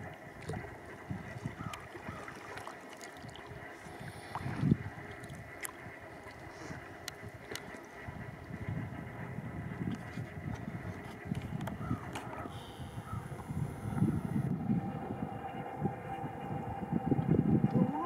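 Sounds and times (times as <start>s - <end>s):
water splashing around kayak: 0.0s - 8.2s.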